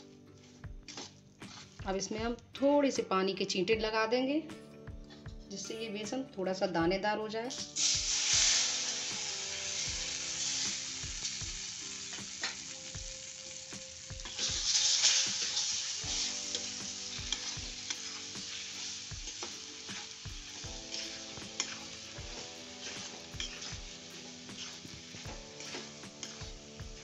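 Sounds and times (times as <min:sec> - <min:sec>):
flour sizzling in hot fat: 0:00.0 - 0:02.1, 0:07.6 - 0:27.0
spatula scraping metal pan: 0:00.4 - 0:01.8, 0:14.3 - 0:27.0.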